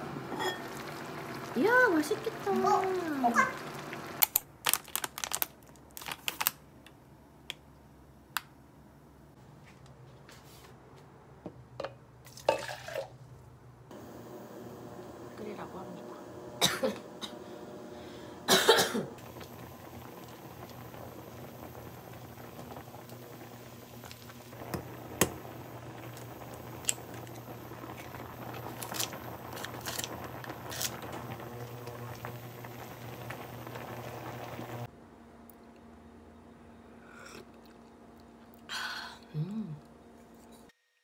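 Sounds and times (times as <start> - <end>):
water bubbling at a boil: 0.0 - 4.2, 19.2 - 34.9.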